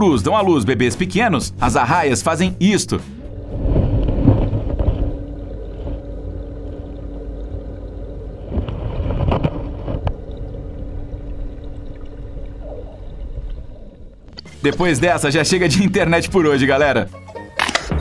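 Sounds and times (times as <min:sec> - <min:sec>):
constant hum: 0:03.0 - 0:16.6
muffled underwater rumble: 0:03.0 - 0:17.0.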